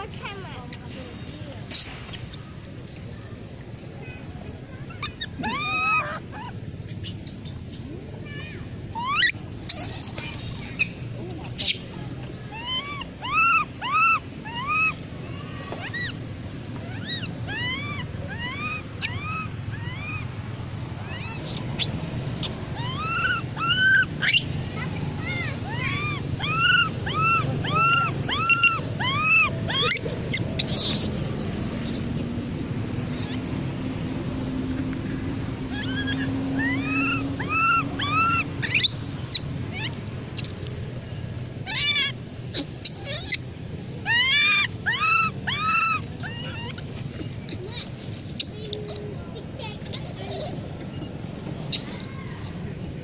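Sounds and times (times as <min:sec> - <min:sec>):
baby monkey squealing: 0:01.7 - 0:02.4, 0:04.9 - 0:07.8, 0:08.9 - 0:11.0, 0:11.6 - 0:11.9, 0:12.5 - 0:15.1, 0:15.7 - 0:20.3, 0:21.0 - 0:32.0, 0:33.1 - 0:33.5, 0:35.7 - 0:47.6, 0:48.3 - 0:49.1, 0:49.8 - 0:50.5, 0:51.7 - 0:52.5.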